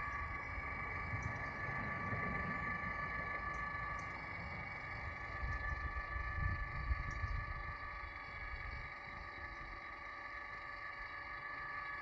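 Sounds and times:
low rumble: 0.0 - 7.5.

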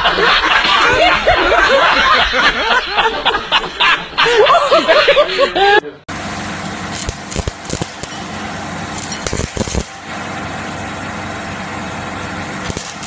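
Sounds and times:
welding arc pops: 6.9 - 8.2, 8.9 - 10.0, 12.6 - 13.0
arc welding crackling hiss: 7.0 - 8.2, 9.0 - 9.9.

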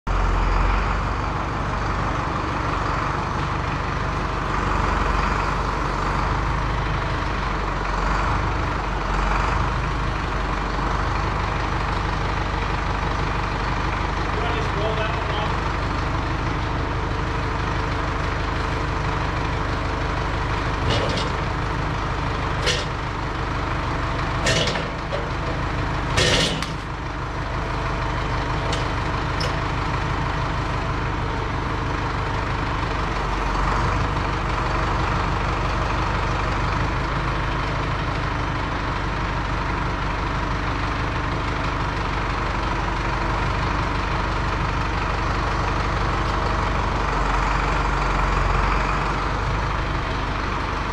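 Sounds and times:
tractor engine running: 0.1 - 50.9
log clunking onto steel bed: 20.4 - 23.4, 24.2 - 27.0, 28.3 - 29.8.

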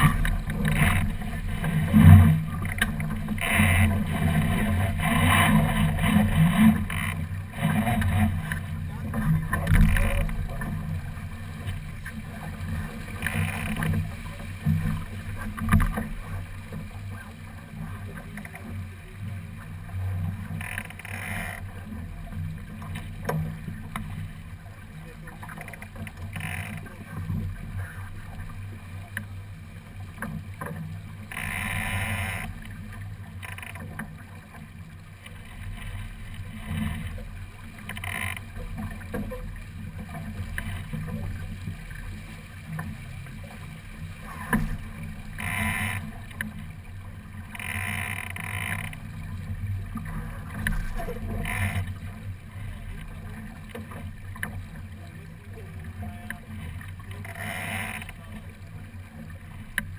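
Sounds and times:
water rushing along boat hull: 0.0 - 59.9.

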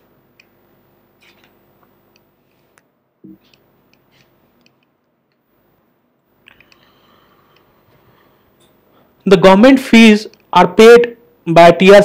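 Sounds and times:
faint clicks: 6.4 - 6.9.

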